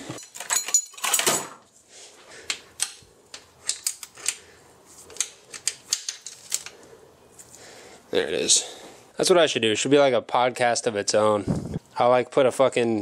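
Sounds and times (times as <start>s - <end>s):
metal hand tools clattering: 0.0s - 1.6s.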